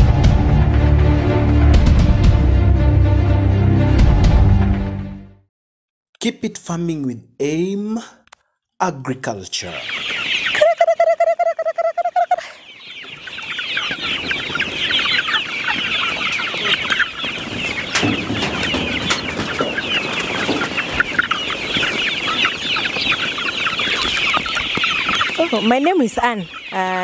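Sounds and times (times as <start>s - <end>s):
chicks cheeping and clucking: 9.2s - 27.0s.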